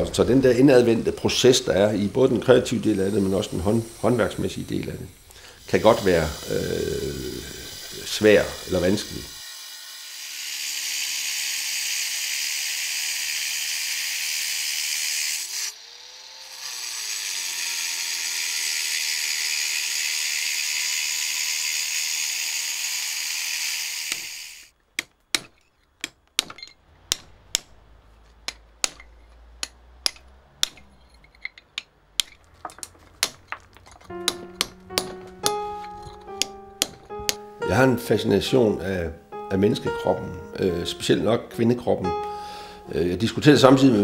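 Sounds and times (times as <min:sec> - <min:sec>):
angle grinder cutting stone: 0:00.0 - 0:24.7, 0:32.7 - 0:38.6
hammer striking chisel on stone: 0:25.0 - 0:27.7, 0:28.4 - 0:37.4.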